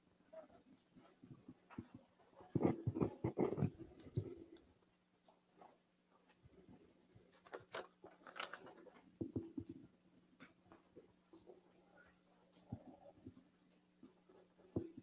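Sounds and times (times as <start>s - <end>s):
rustling of small items handled: 0.8s - 9.8s.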